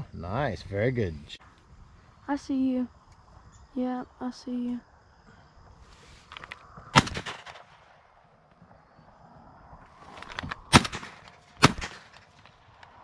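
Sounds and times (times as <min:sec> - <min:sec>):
shotgun shots: 0:06.9 - 0:08.0, 0:10.7 - 0:12.6.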